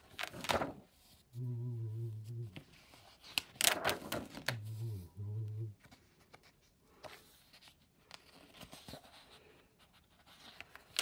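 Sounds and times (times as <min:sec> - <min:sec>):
sketchbook paper rustling: 0:00.0 - 0:01.4, 0:02.1 - 0:11.0
low voice humming: 0:01.3 - 0:02.8, 0:04.5 - 0:05.9.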